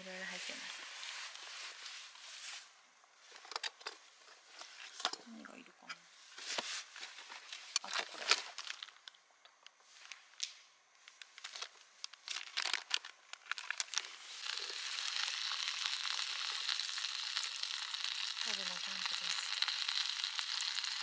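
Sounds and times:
rustling and clicking of gear: 6.4s - 14.1s
meat sizzling: 13.7s - 21.0s.

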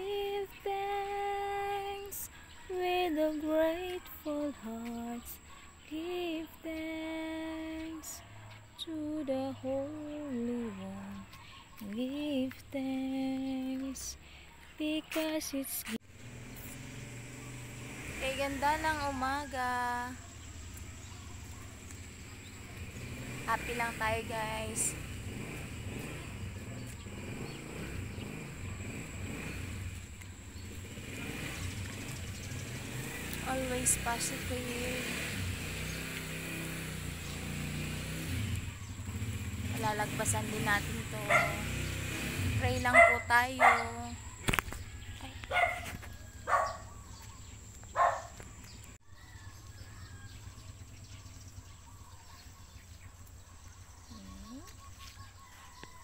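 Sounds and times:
faint bird chirping: 0.0s - 56.0s
dog barking: 41.2s - 41.7s, 42.9s - 44.2s, 45.5s - 46.9s, 47.9s - 48.4s.

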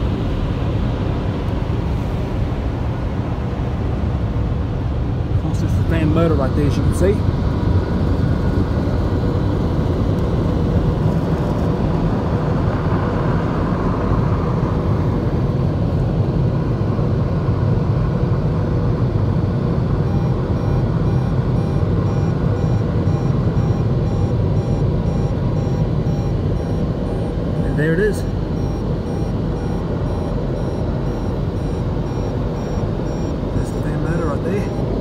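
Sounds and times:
car wash dryer blowers: 0.0s - 35.0s
faint repeating beep: 20.1s - 35.0s.

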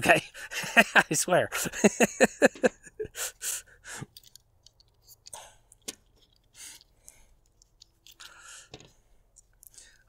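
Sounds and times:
faint clicks of small parts: 4.0s - 10.0s.

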